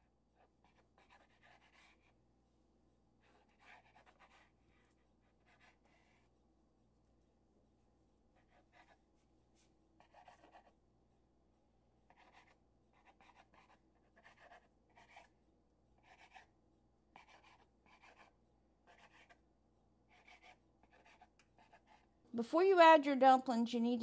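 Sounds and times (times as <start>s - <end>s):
knife cutting through dough: 20.1s - 22.0s.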